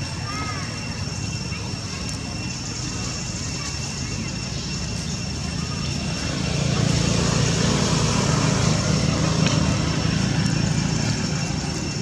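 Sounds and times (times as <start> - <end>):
motor engine humming: 0.0 - 12.0.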